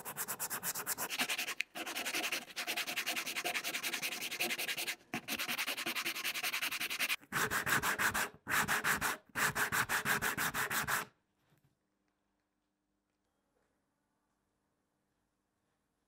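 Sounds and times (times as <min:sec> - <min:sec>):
sanding block rasping: 0:00.0 - 0:11.0.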